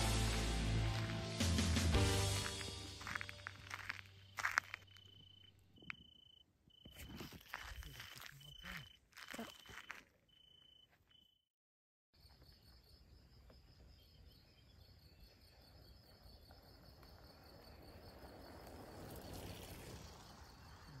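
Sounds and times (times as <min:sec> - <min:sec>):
crickets chirping: 0:03.0 - 0:11.4, 0:12.2 - 0:21.0
bicycles rolling past: 0:16.4 - 0:21.0.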